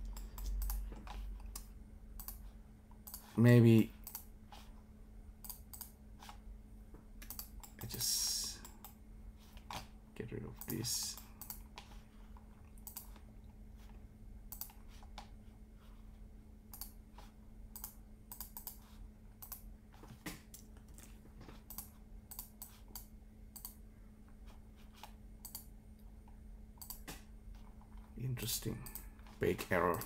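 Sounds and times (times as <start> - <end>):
keyboard and mouse clicks: 0.0 - 3.4, 4.0 - 4.3, 5.4 - 6.4, 7.2 - 8.0, 10.6 - 13.2, 14.5 - 15.3, 16.7 - 17.0, 17.8 - 19.6, 20.2 - 23.8, 25.0 - 25.7, 26.8 - 28.1, 28.8 - 30.0
steady low hum: 0.0 - 30.0.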